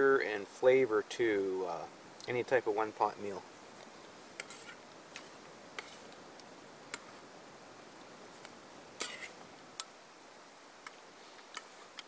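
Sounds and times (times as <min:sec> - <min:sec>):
faint steady hiss: 0:00.0 - 0:12.0
spoon scraping metal pot: 0:04.4 - 0:06.2.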